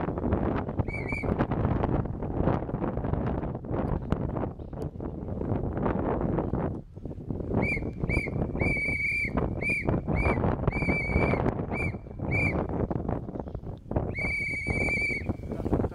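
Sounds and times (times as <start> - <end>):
hand-held whistle toots: 0.8 - 1.4, 7.6 - 12.7, 14.1 - 15.4.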